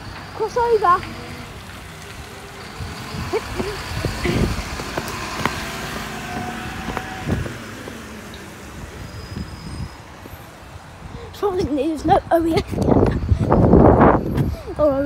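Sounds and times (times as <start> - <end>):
vehicle passing: 0.0 - 12.4.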